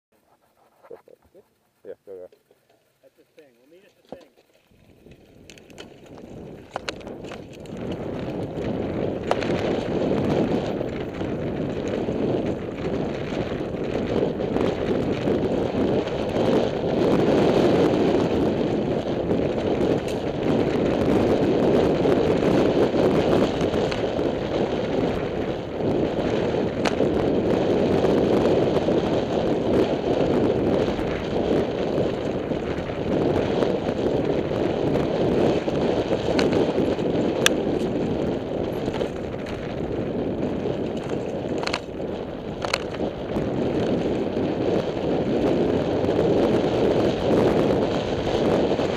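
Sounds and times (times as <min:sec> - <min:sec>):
bike clicks and rattles: 0:02.4 - 0:48.9
tyres rolling over gravel: 0:02.6 - 0:14.8
wind rushing on microphone: 0:03.4 - 0:48.9.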